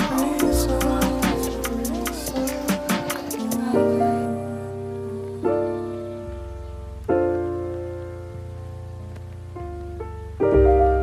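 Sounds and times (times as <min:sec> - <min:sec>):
steady low bass: 0:00.0 - 0:03.6
piano chords: 0:00.0 - 0:11.0.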